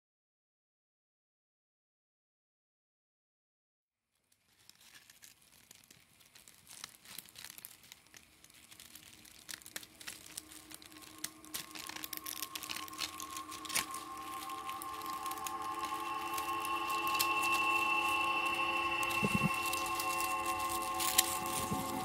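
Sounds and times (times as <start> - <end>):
crackling clicks: 4.3 - 22.0
held musical tone: 9.9 - 22.0.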